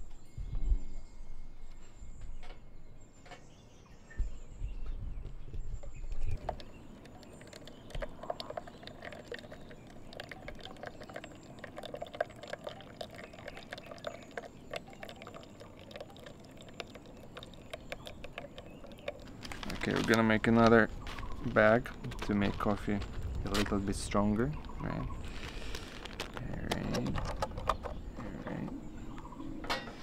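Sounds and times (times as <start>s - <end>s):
water pouring and trickling: 5.8s - 29.5s.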